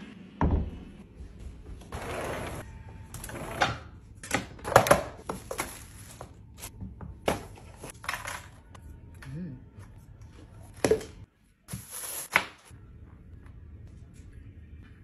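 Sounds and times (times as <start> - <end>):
sliding glass door rolling: 1.9 - 3.7.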